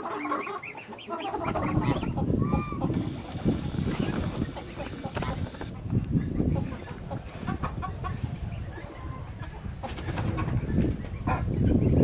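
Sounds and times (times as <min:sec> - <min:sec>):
birds chirping: 0:00.0 - 0:07.0.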